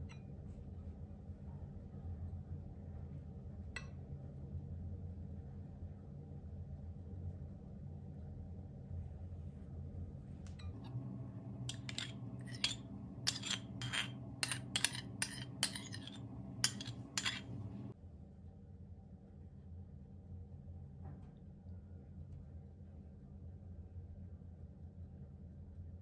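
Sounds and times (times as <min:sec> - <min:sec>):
spoon clinking on ceramic bowls: 0:10.6 - 0:17.9.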